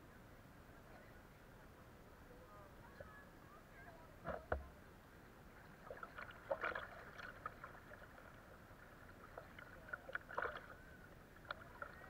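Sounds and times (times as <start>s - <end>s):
faint water noise: 0.0s - 12.0s
paddle splashes and drips: 5.6s - 12.0s.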